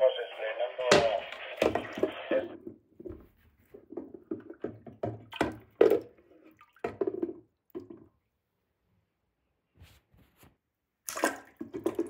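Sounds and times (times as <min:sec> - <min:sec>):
water sloshing in toilet bowl: 0:03.8 - 0:08.2, 0:11.1 - 0:12.0.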